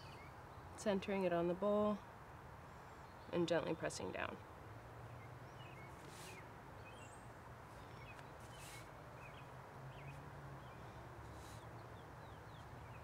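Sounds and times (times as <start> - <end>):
distant birds chirping: 0.0 - 13.0
soft brushing hisses: 5.9 - 6.6, 7.6 - 9.2, 10.9 - 11.8.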